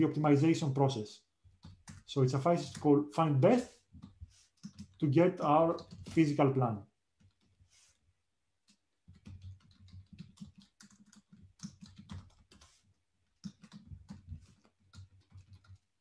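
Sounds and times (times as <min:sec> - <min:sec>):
faint computer keyboard typing: 0:01.4 - 0:02.9, 0:03.6 - 0:06.3, 0:07.1 - 0:07.7, 0:08.6 - 0:16.0.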